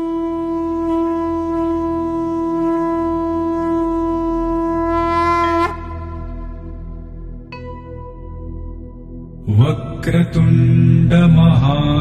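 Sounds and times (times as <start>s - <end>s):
conch shell blown: 0.0s - 8.3s
faint low drone: 0.0s - 12.0s.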